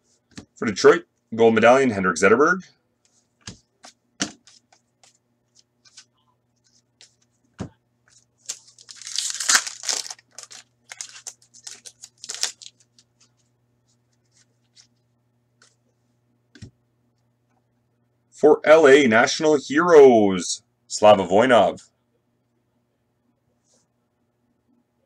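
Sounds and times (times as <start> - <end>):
wrapper tearing rip: 8.4 - 12.8
wrapper crinkling: 8.4 - 13.2.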